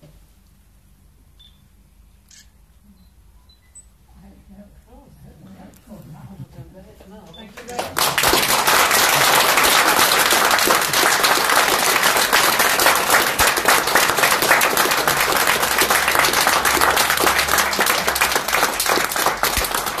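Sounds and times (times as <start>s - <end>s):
people applauding: 7.5s - 20.0s.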